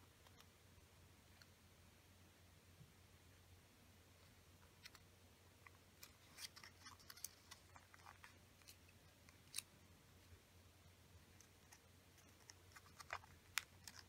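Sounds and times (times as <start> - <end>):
paper being folded and creased: 6.0 - 9.7, 11.4 - 14.0.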